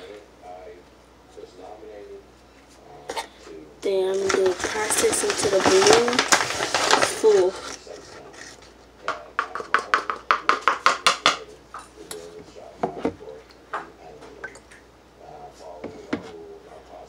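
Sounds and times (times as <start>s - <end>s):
spoon tapping in plastic funnel: 9.1s - 11.4s.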